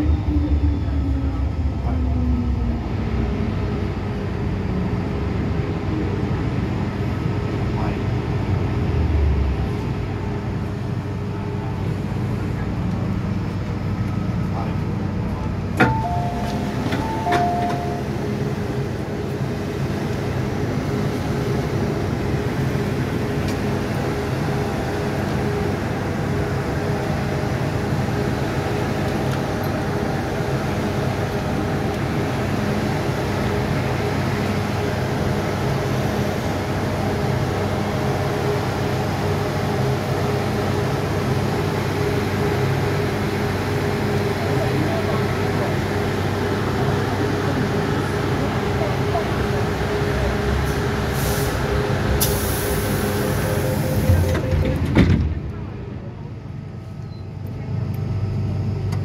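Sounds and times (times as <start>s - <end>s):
train hum: 0.0s - 59.0s
two-note door chime: 15.8s - 18.1s.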